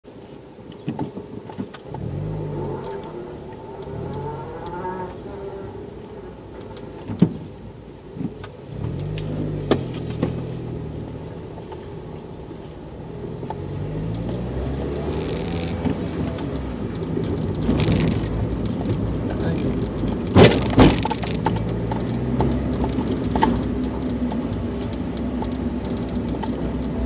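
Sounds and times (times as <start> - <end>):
vehicle engine from inside cab: 0.1 - 27.0
light clicks and rattles: 13.4 - 27.0.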